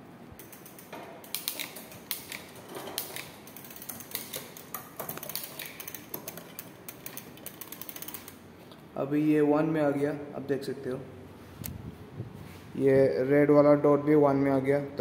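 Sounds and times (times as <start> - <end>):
bicycle drivetrain clicking: 1.4 - 8.4.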